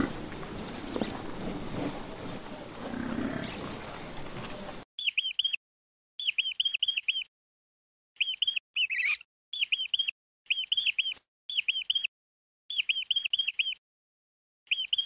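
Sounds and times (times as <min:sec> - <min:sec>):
high-pitched chirping squeaks: 0:05.0 - 0:05.6, 0:06.2 - 0:07.3, 0:08.2 - 0:12.1, 0:12.7 - 0:13.8, 0:14.7 - 0:15.0.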